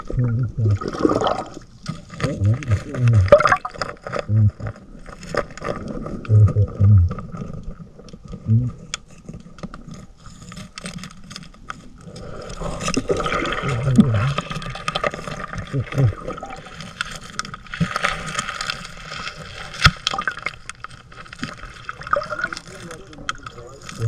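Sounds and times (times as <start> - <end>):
muffled underwater sound: 0.0 - 1.6, 2.2 - 4.8, 6.1 - 7.4, 13.2 - 17.2.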